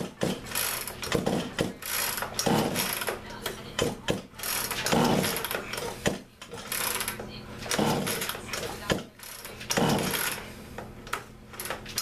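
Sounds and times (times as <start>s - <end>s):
hand tools clicking and knocking: 0.0s - 12.0s.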